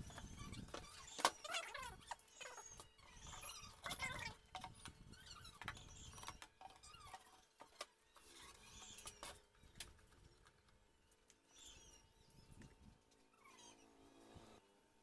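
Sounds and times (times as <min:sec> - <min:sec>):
high squeaky chirps: 0:00.0 - 0:09.8, 0:11.5 - 0:12.6, 0:13.3 - 0:14.0.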